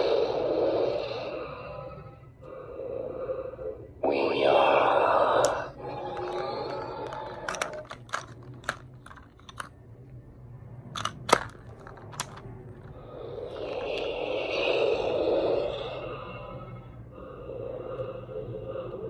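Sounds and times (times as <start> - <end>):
plastic toy clicks and clatter: 5.9 - 9.8, 11.0 - 12.9.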